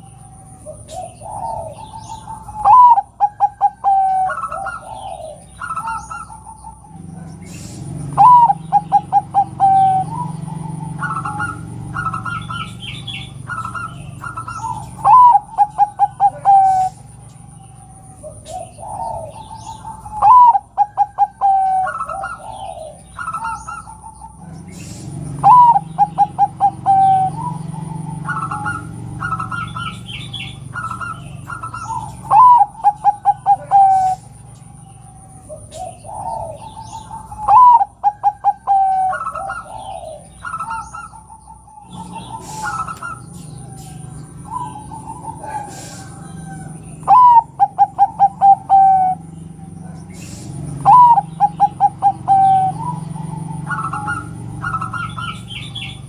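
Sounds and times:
dove cooing: 0:00.0 - 0:56.0
high bird chirps: 0:00.0 - 0:56.0.

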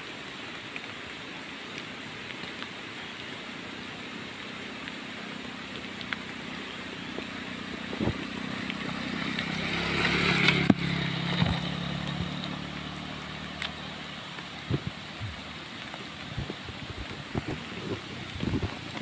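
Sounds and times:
tyre hiss on wet road: 0:00.0 - 0:19.0
motor scooter engine passing: 0:06.4 - 0:14.4.

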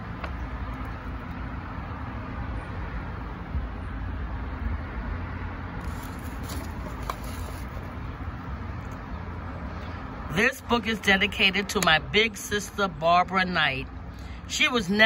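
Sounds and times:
paper rustling: 0:05.8 - 0:07.9.

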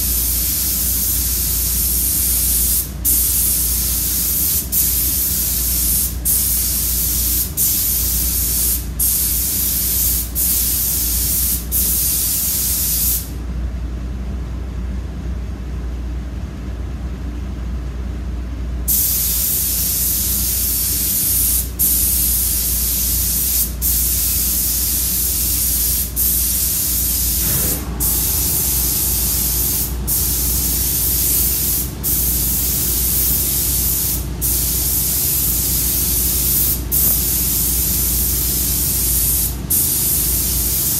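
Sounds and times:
paint spray gun hissing: 0:00.0 - 0:13.3, 0:18.9 - 0:40.9
low hum: 0:27.3 - 0:32.6.

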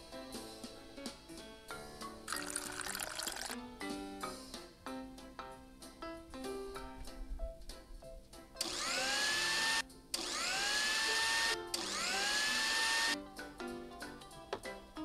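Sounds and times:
light background music: 0:00.0 - 0:15.0
blender motor whining: 0:08.6 - 0:13.2.

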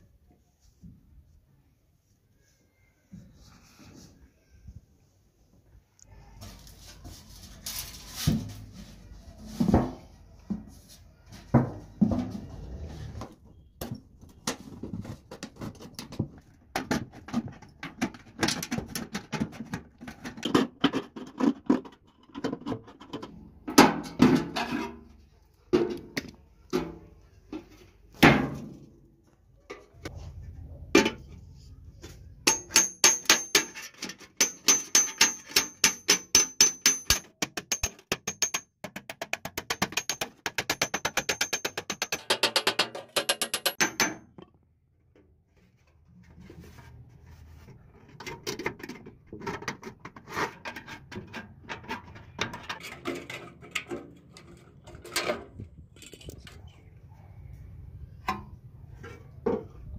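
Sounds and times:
hammer striking metal with ringing: 0:32.5 - 0:33.8, 0:34.4 - 0:38.7.

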